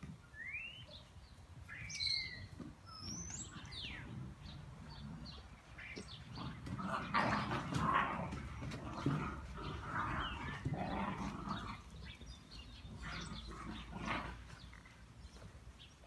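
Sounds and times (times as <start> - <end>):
small birds chirping: 0.0 - 16.0
puppies scuffling: 5.0 - 16.0.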